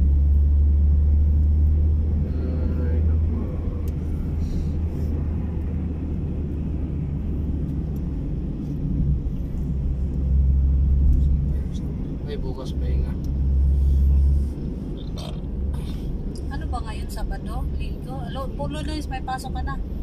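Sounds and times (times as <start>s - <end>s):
car cabin engine and road noise: 0.0s - 20.0s.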